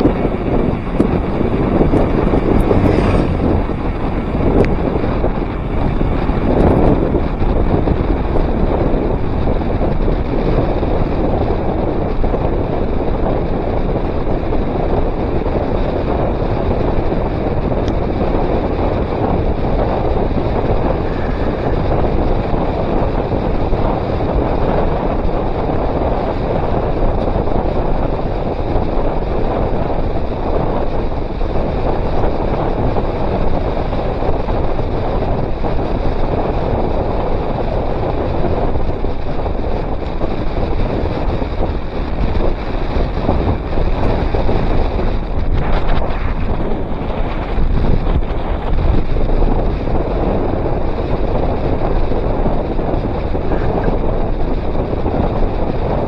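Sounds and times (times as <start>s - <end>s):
wind buffeting microphone: 0.0s - 56.0s.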